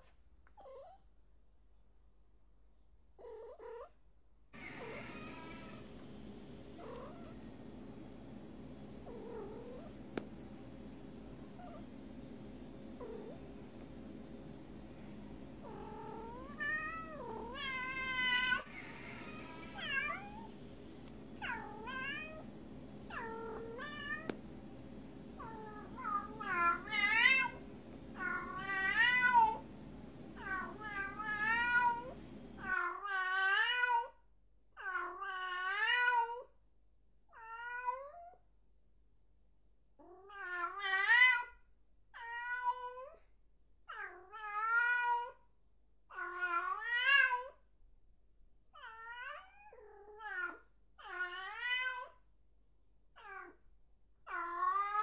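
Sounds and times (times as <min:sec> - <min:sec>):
low background hum: 0:00.0 - 0:55.0
cat meowing: 0:04.6 - 0:05.9, 0:15.6 - 0:20.5, 0:21.4 - 0:22.4, 0:23.1 - 0:24.4, 0:25.4 - 0:27.6, 0:28.2 - 0:29.6, 0:37.3 - 0:38.4, 0:42.2 - 0:43.2, 0:48.8 - 0:52.2, 0:53.2 - 0:53.6.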